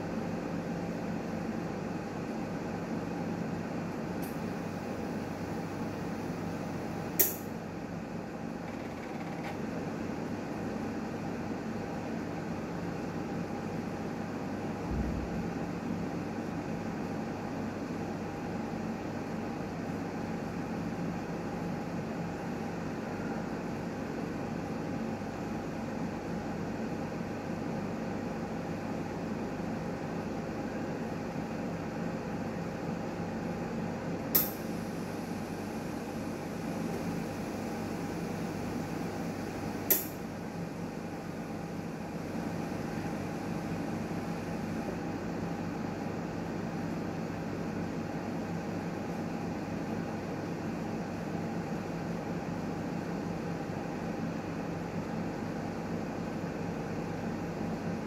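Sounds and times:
sharp click: 7.2 - 7.5, 34.3 - 34.6, 39.9 - 40.2.

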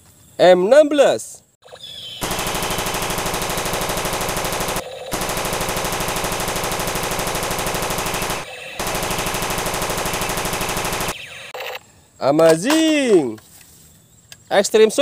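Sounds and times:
toy gun machine-gun sound effect: 1.7 - 11.8.

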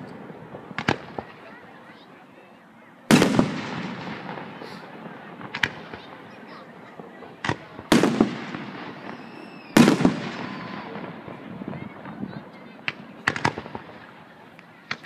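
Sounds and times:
firework booms echoing: 0.0 - 1.5, 3.1 - 14.3
firework cracks: 0.0 - 2.0, 3.1 - 15.0.

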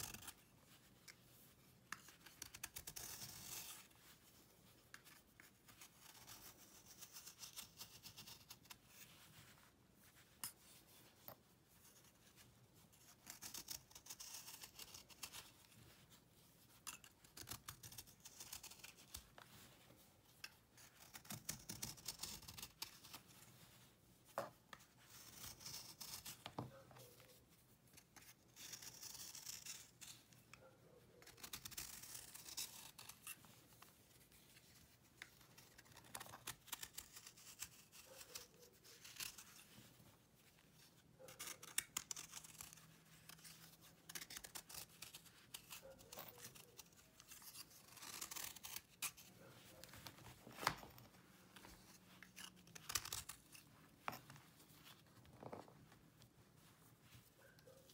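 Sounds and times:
knife scraping dried paste: 13.0 - 15.5, 16.8 - 19.2, 31.2 - 33.4, 35.3 - 39.7, 41.2 - 49.9.

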